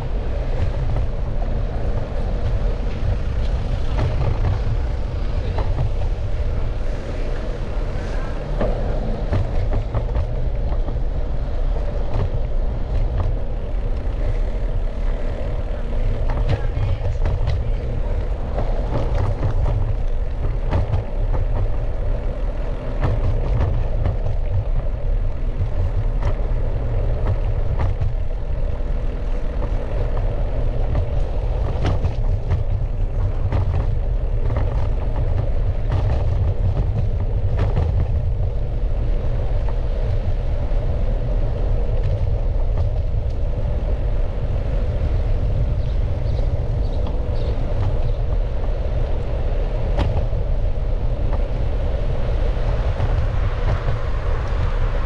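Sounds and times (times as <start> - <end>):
wind and road rumble: 0.0 - 55.0.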